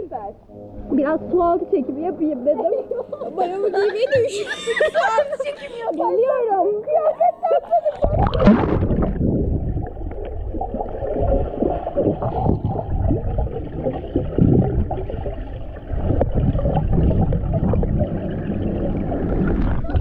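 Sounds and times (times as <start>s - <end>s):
underwater gurgling and bubbles: 7.9s - 20.0s.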